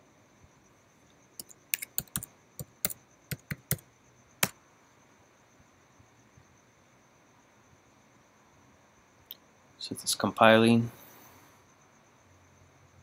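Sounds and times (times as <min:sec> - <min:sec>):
keyboard keystrokes: 0:01.4 - 0:03.8.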